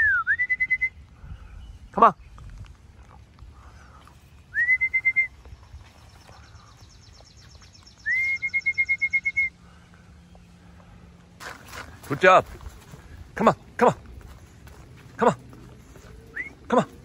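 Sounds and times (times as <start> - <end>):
person whistling: 0.0 - 1.0, 4.5 - 5.3, 8.0 - 9.6.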